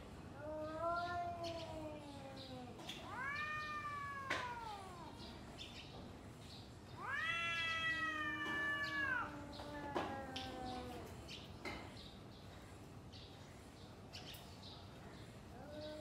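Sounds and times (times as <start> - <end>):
cat low steady moan: 0.3 - 5.4, 7.0 - 11.3, 15.5 - 16.0
cats yowling: 0.4 - 5.4, 7.0 - 11.3.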